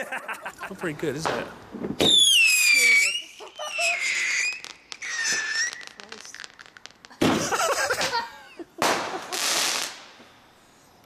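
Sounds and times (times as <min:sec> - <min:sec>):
firework crackles: 0:00.0 - 0:10.9
firework whistle falling in pitch: 0:02.0 - 0:05.8
loud firework burst: 0:08.8 - 0:10.2.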